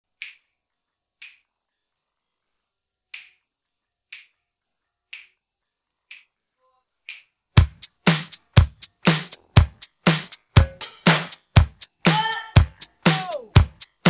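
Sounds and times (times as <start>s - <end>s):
finger snaps: 0.2s - 0.4s, 1.2s - 1.5s, 3.1s - 3.4s, 4.1s - 4.4s, 5.1s - 5.4s, 6.1s - 6.3s, 7.1s - 7.3s.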